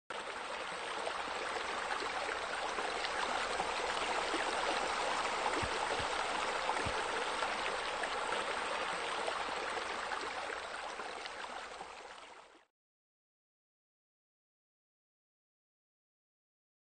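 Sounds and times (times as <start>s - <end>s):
flowing splashing water: 0.1s - 12.5s.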